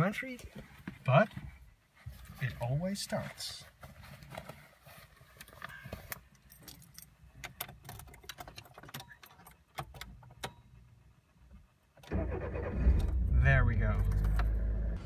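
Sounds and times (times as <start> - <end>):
car keys jangling: 6.2 - 10.6
car engine turning over: 12.0 - 15.0.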